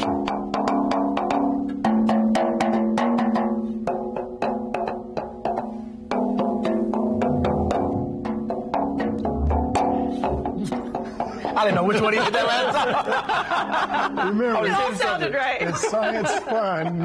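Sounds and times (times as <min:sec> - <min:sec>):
background music sustained chords: 0:05.8 - 0:11.6.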